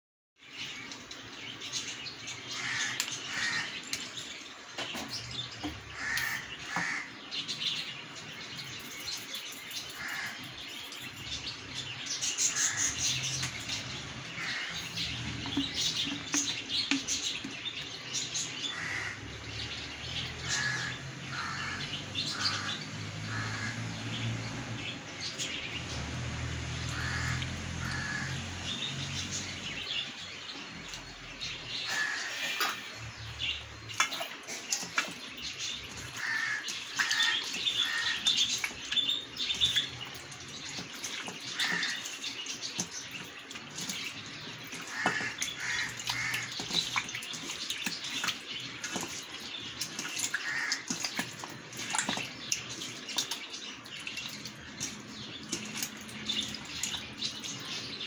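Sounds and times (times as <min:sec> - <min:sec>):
harsh crow-like bird calls: 0:02.4 - 0:04.2, 0:05.6 - 0:07.5, 0:09.9 - 0:10.8, 0:12.4 - 0:17.5, 0:18.4 - 0:24.3, 0:26.8 - 0:28.9, 0:31.7 - 0:34.3, 0:35.9 - 0:40.0, 0:41.2 - 0:42.4, 0:44.4 - 0:49.1, 0:50.0 - 0:52.3.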